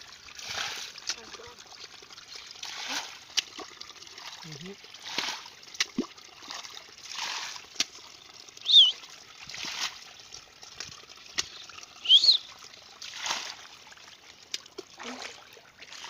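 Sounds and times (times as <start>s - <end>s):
water splashing from bowl: 0.0s - 16.0s
bird chirping: 8.6s - 9.0s, 11.5s - 12.5s.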